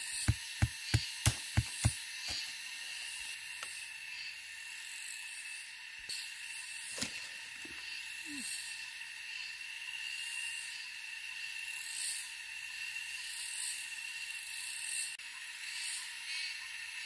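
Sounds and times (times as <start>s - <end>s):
insect chorus: 0.0s - 17.0s
stake pounded into ground: 0.1s - 2.5s, 6.9s - 7.3s.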